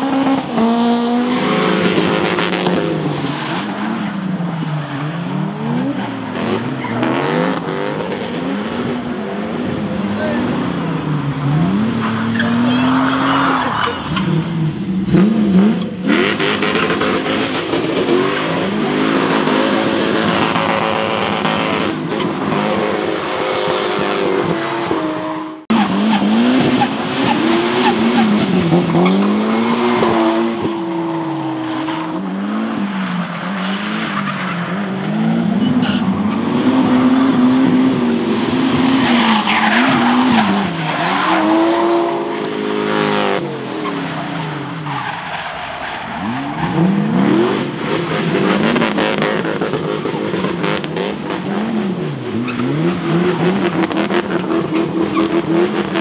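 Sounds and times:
car engines revving hard: 0.0s - 56.0s
tyres screeching: 11.5s - 15.9s.

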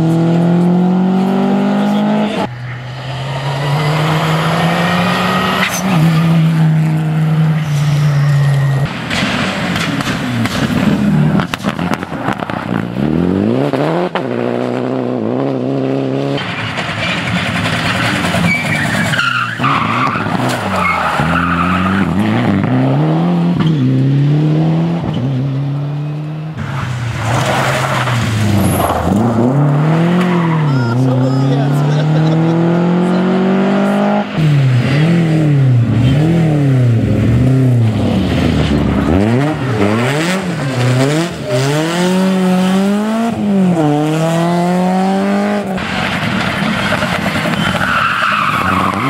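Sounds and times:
rally car engines revving: 0.0s - 49.0s
tyres sliding on gravel: 16.4s - 22.0s, 26.6s - 32.0s, 45.8s - 49.0s.

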